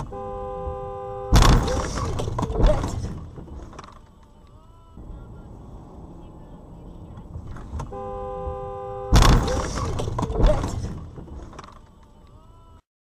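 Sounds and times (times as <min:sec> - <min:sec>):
car horn: 0:00.0 - 0:02.9, 0:06.3 - 0:10.8
car collision bang: 0:01.3 - 0:03.4, 0:07.4 - 0:11.3.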